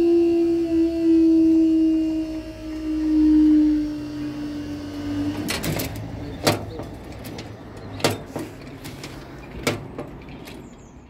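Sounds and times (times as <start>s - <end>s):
low steady hum: 0.0s - 7.6s
level crossing warning tone: 0.0s - 8.4s
barrier clanking and clicking: 5.2s - 11.0s.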